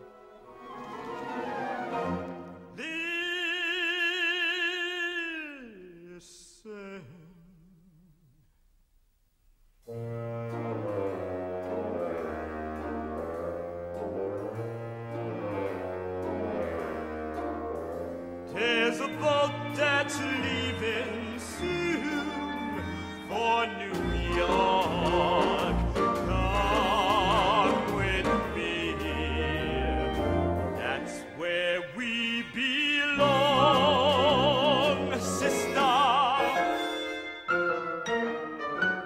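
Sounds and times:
orchestral accompaniment: 0.0 - 3.5, 9.8 - 39.0
man singing operatic tenor: 2.7 - 8.2, 18.5 - 37.2.

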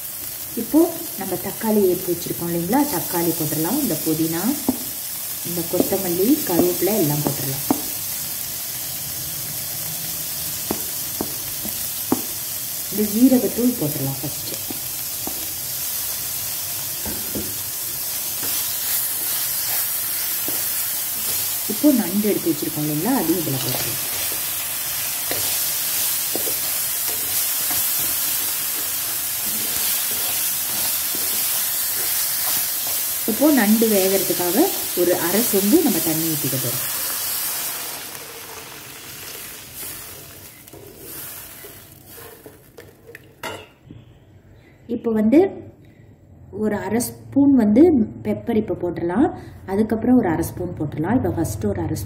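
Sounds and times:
food sizzling in a pan: 0.0 - 42.9
wooden spatula stirring: 18.4 - 21.8, 23.5 - 33.4, 39.8 - 43.4.

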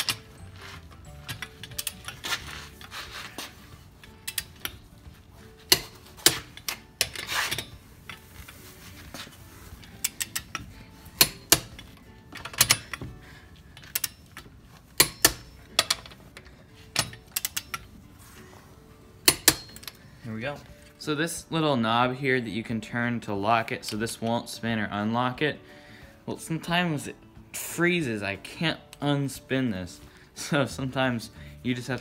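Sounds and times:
ratchet wrench clicking on lug nuts: 9.9 - 10.6, 13.8 - 14.4, 15.0 - 16.1, 17.0 - 17.9, 19.3 - 20.0.

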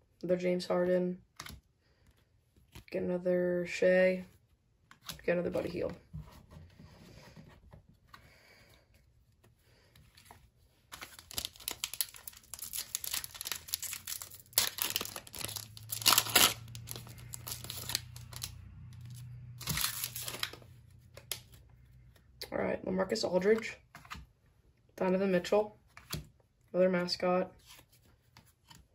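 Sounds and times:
foil pack tearing and crinkling: 11.0 - 18.5, 19.6 - 20.6.

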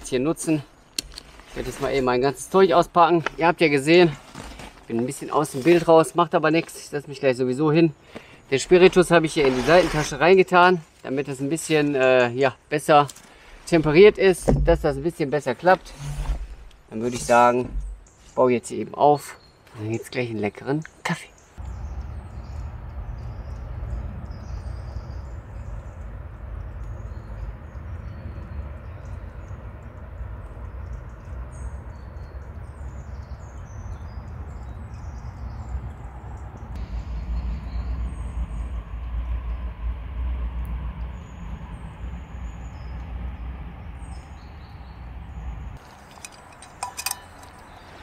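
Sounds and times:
small birds chirping: 0.0 - 39.8, 41.0 - 48.0
rustling: 1.0 - 6.8, 8.2 - 11.9, 45.8 - 48.0
deep rumble: 21.6 - 33.0, 35.4 - 45.8
metallic clinks: 45.9 - 47.8.

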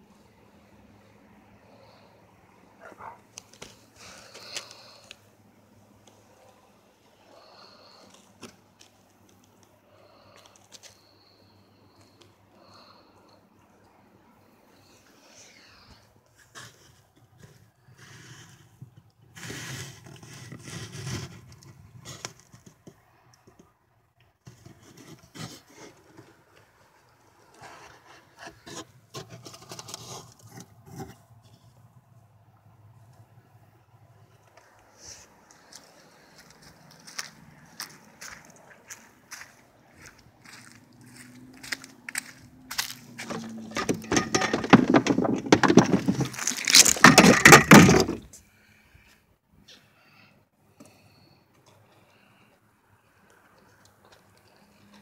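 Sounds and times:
phone scraping against wood: 16.4 - 22.7, 27.6 - 31.6, 43.1 - 48.4
footsteps on dry leaves: 35.6 - 43.5
rustles and clicks: 40.0 - 48.4.

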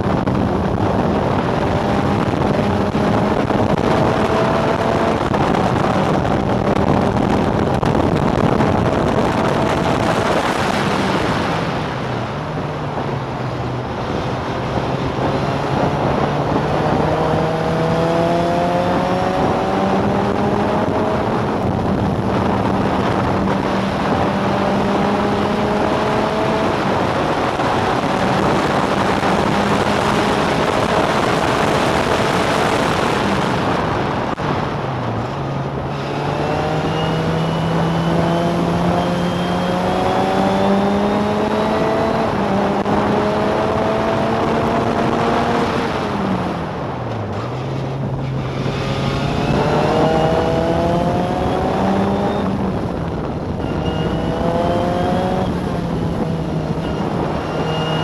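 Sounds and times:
racing car engine: 0.0 - 58.0
wind rush: 0.0 - 58.0.

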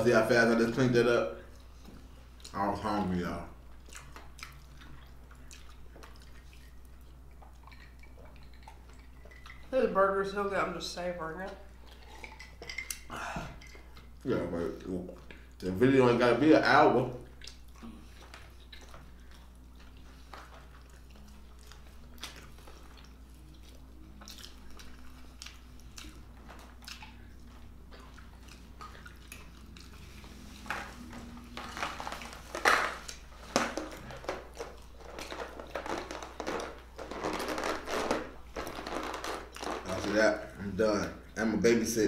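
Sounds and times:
chewing food: 0.0 - 41.4
low steady hum: 0.0 - 42.0.

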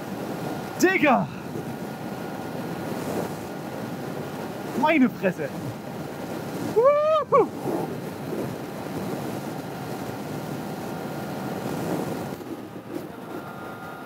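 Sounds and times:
motorcycle engine: 0.0 - 4.8
wind rushing on microphone: 0.0 - 14.0.

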